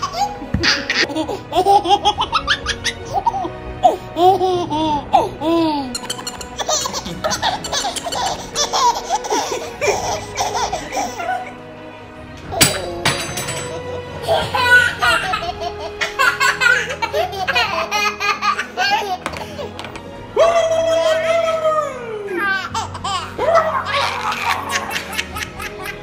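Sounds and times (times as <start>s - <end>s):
babies laughing: 0.0s - 11.8s, 12.4s - 26.0s
background music: 0.0s - 26.0s
young child laughing: 4.2s - 11.6s, 14.2s - 19.7s, 22.4s - 26.0s.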